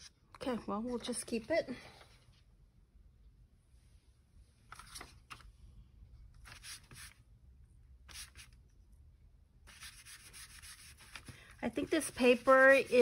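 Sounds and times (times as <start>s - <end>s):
sponge dabbing in oil: 9.7s - 13.0s.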